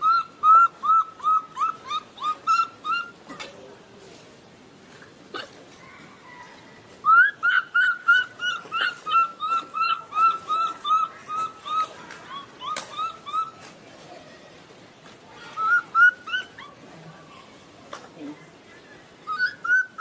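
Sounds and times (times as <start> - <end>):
baby monkey whimpering calls: 0.0 - 3.2, 7.0 - 13.6, 15.5 - 16.8, 19.3 - 20.0.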